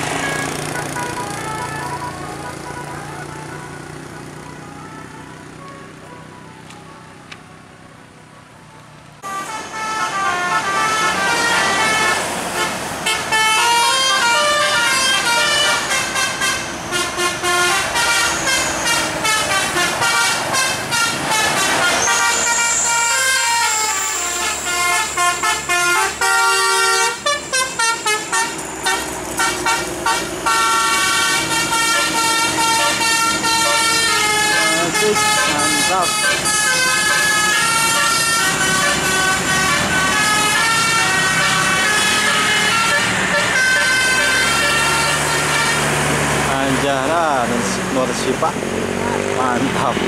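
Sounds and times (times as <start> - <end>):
faint road noise: 0.0 - 50.0
musical air horn melodies: 9.2 - 46.1.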